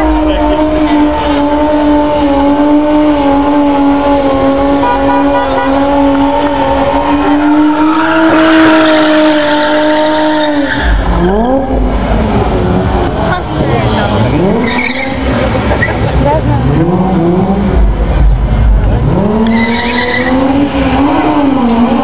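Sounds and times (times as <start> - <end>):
car engine revving: 0.0 - 22.0
tyres spinning and squealing: 3.6 - 17.3, 19.1 - 22.0.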